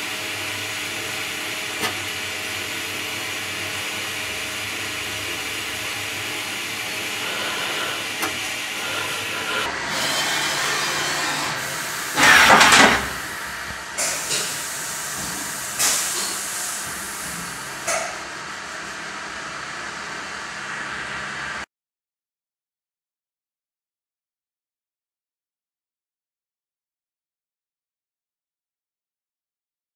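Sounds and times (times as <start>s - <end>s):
milling machine running: 0.3s - 21.5s
air hissing: 7.2s - 13.3s, 14.0s - 17.6s.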